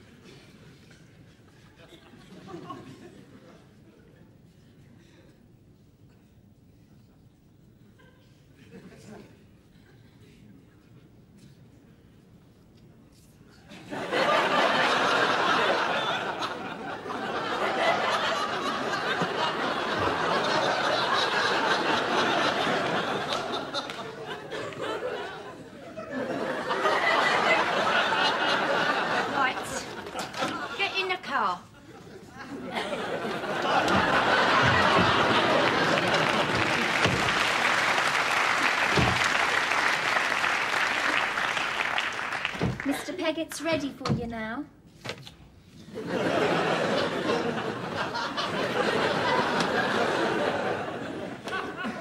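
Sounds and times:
studio audience laughing: 1.5 - 3.8, 13.7 - 31.1, 31.8 - 42.9, 45.9 - 52.0.

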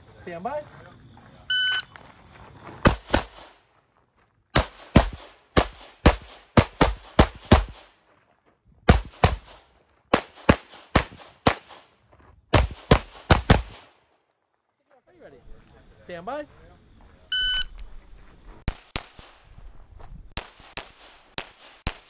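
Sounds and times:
pistol firing rapid shots: 2.8 - 3.6, 4.6 - 7.9, 8.9 - 11.9, 12.5 - 14.0, 18.7 - 19.4, 20.4 - 22.0
shot timer beep: 17.3 - 17.7.

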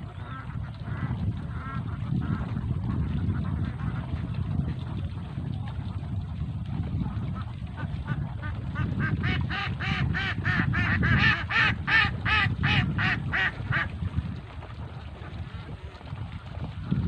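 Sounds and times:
ducks quacking: 0.0 - 5.0, 7.0 - 13.9.

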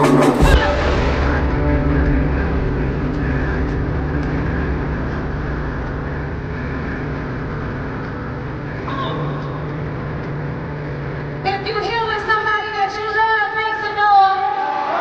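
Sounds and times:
steady low rumble: 0.0 - 14.0
music: 0.0 - 15.0
arena crowd noise: 11.5 - 15.0.

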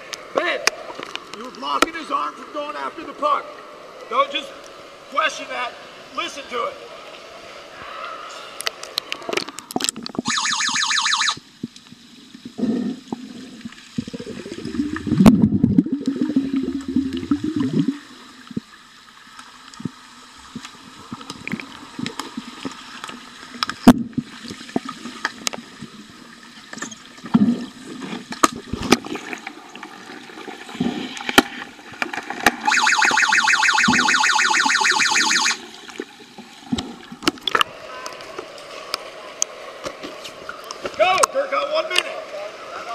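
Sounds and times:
bubbling and rushing water: 8.4 - 10.4, 11.0 - 42.9
sticks and puck clicking underwater: 8.6 - 10.3, 36.7 - 42.1
underwater buzzer: 10.2 - 11.4, 32.6 - 35.6.

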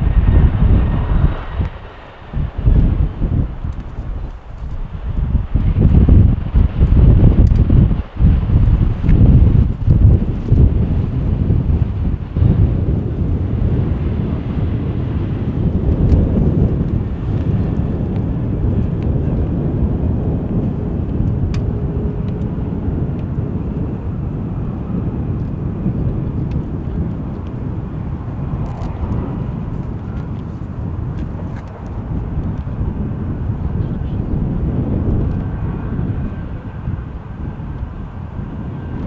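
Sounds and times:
jet engines roaring: 0.0 - 39.0.

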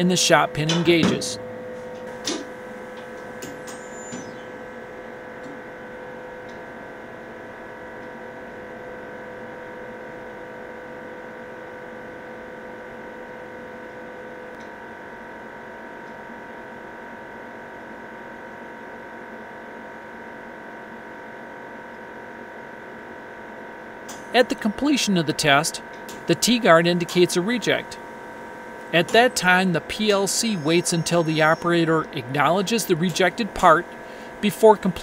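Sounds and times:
steady whining tones: 0.0 - 7.6, 24.1 - 35.0
machine hum: 0.0 - 16.8, 24.0 - 35.0.

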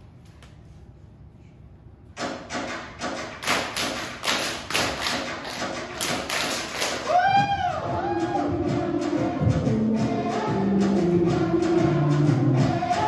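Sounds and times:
body percussion claps and slaps: 2.2 - 7.6
music: 2.2 - 13.0.

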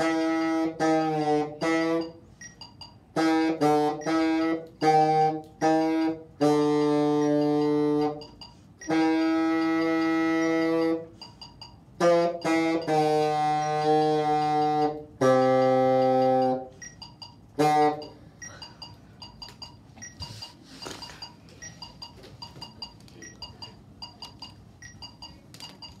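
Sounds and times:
bassoon playing held notes: 0.0 - 2.2, 3.1 - 11.2, 12.0 - 16.8, 17.6 - 18.3.

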